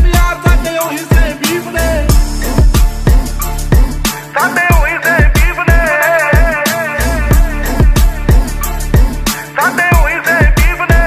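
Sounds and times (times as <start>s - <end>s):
hip hop beat: 0.0s - 11.0s
deep sliding bass notes: 1.8s - 4.1s, 7.0s - 9.3s.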